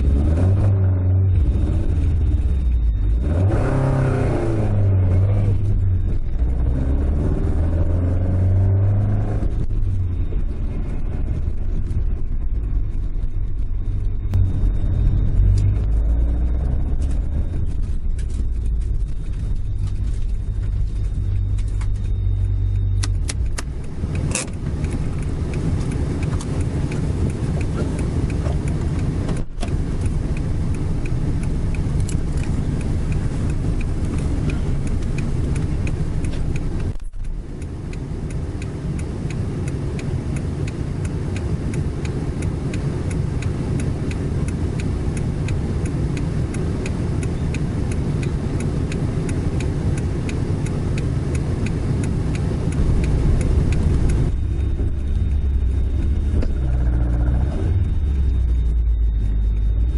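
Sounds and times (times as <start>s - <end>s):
car engine from inside cabin: 0.0s - 59.9s
light ticking: 12.9s - 59.9s.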